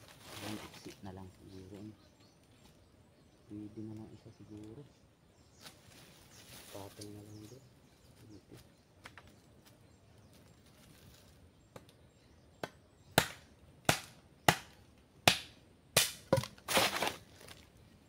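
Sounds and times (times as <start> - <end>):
hand tool striking wood: 12.6 - 17.2.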